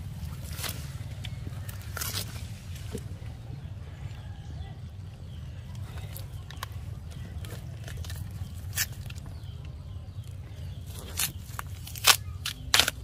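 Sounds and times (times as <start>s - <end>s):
palm fibre tearing and rustling: 0.0s - 3.2s, 5.8s - 13.0s
fibre snapping: 7.4s - 9.8s, 10.9s - 13.0s.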